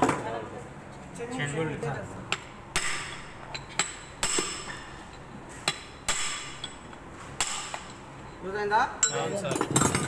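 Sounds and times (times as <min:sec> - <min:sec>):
hammer striking metal punch: 0:02.3 - 0:04.8, 0:05.6 - 0:06.8, 0:07.4 - 0:07.9.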